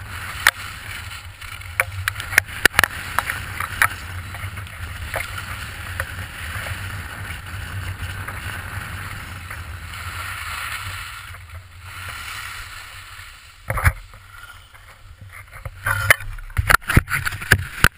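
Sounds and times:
skis scraping on snow: 0.0s - 17.9s
wind rumble on microphone: 0.0s - 17.9s.

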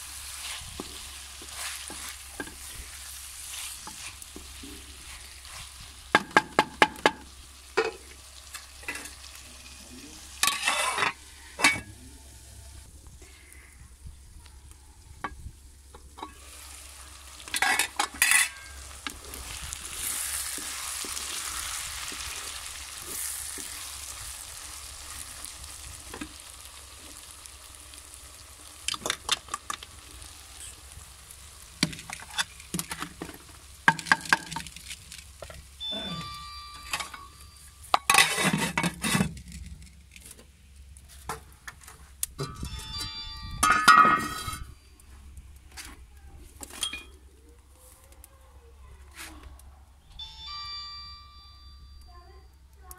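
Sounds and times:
food sizzling in a pot: 0.0s - 12.9s, 15.2s - 39.4s.

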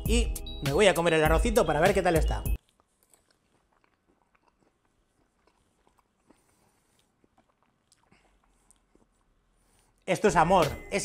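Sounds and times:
faint chewing mouth clicks: 2.6s - 10.1s.

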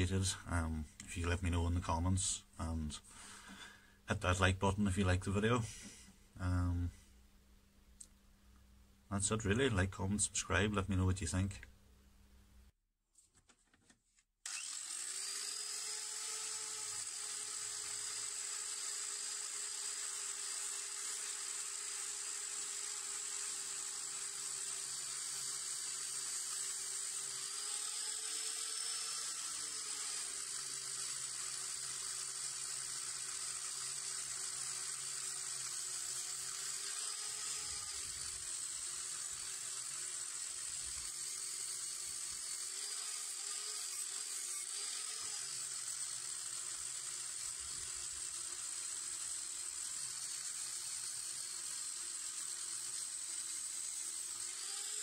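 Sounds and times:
angle grinder grinding metal: 14.5s - 55.0s.

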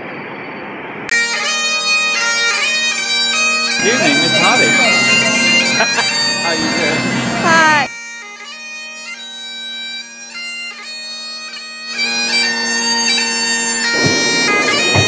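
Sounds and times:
bagpipes playing: 1.1s - 15.0s.

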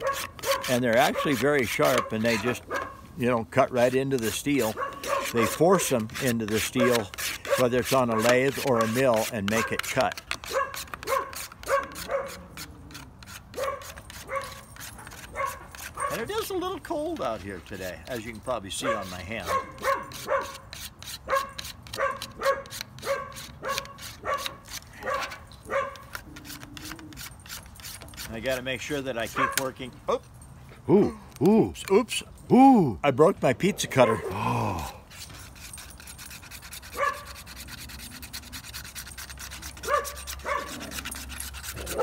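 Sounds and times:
sharpener scraping plastic disc: 0.0s - 2.9s, 3.5s - 29.7s, 35.1s - 42.0s
dog barking: 0.0s - 3.0s, 4.7s - 5.6s, 6.8s - 9.0s, 10.5s - 12.4s, 13.6s - 16.2s, 18.8s - 20.6s, 21.3s - 26.0s, 29.4s - 29.7s, 34.0s - 34.4s, 37.0s - 37.3s, 39.8s - 40.8s.

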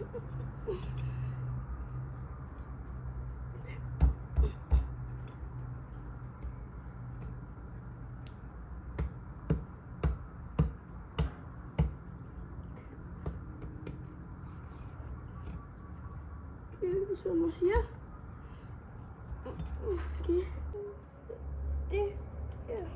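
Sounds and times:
cleaver chopping through bone: 9.0s - 12.0s.

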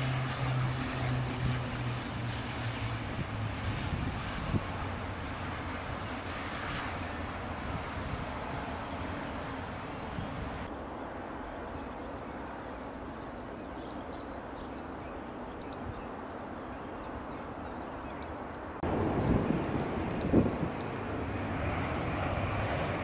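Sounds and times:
turboprop aircraft rushing: 0.0s - 10.7s, 15.9s - 23.0s
distant jet engines rumbling: 0.0s - 23.0s
small birds chirping: 8.6s - 10.7s, 11.7s - 18.7s.

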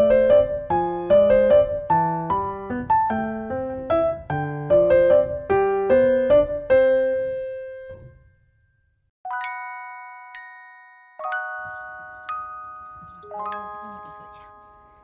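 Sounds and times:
piano melody: 0.0s - 8.5s, 9.2s - 15.0s
chime-like bell notes: 8.2s - 15.0s.

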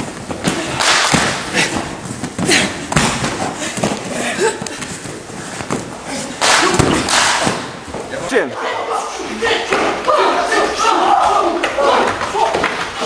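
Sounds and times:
bodies thumping on gym mats: 0.0s - 8.1s
indistinct voices: 8.1s - 13.0s.

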